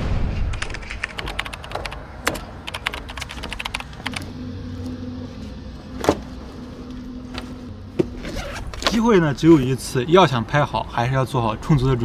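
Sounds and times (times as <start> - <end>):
keyboard key clicks: 0.6 - 4.2
low steady hum: 2.0 - 11.0.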